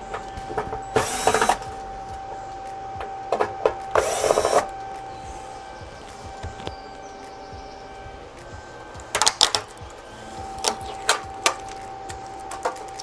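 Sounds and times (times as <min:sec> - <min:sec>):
electric screwdriver whirring: 0:00.8 - 0:01.8, 0:03.9 - 0:04.8.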